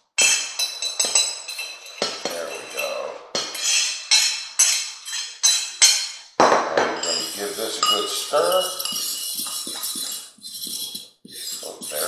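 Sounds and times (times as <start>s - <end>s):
fork clinking against plate: 7.0s - 10.2s.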